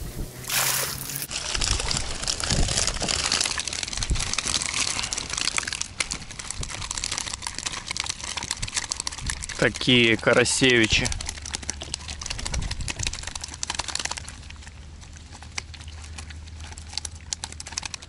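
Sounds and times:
water pouring off net: 0.4s - 9.6s
net mesh rustling: 0.4s - 10.1s.

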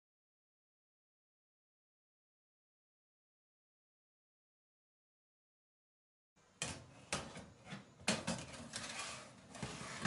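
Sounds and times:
tray scraping on oven rack: 8.2s - 10.0s.

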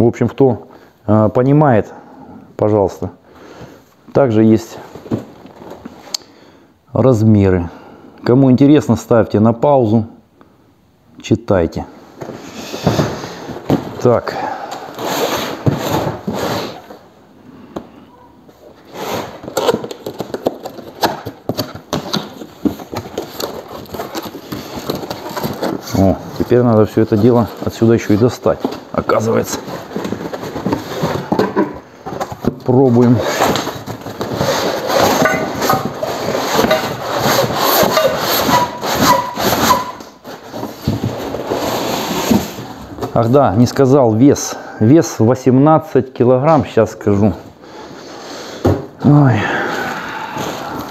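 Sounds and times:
cardboard box rustling and scraping: 14.9s - 17.0s, 18.8s - 42.8s
short squeaks: 36.5s - 40.2s.

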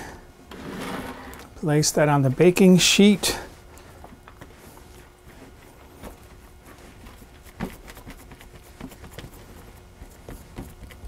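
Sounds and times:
wet hands patting dough: 3.8s - 11.0s.

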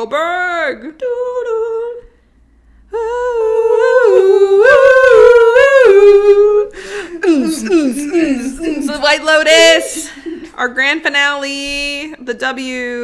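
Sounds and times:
high voice humming: 2.9s - 10.5s.

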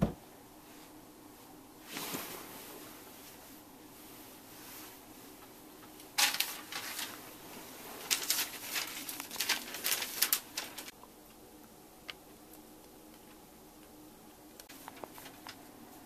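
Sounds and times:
paper crinkling and rustling: 6.0s - 10.9s, 14.6s - 16.0s.

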